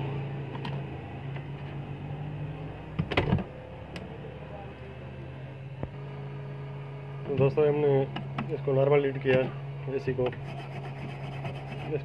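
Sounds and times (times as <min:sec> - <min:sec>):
hot-air station blowing and humming: 0:00.0 - 0:01.8.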